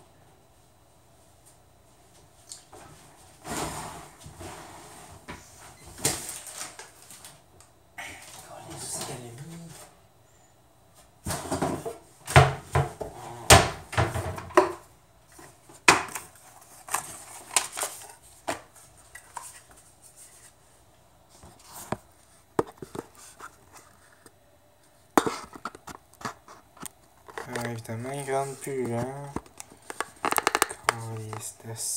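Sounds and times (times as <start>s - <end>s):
clicks and taps: 29.3s - 31.4s.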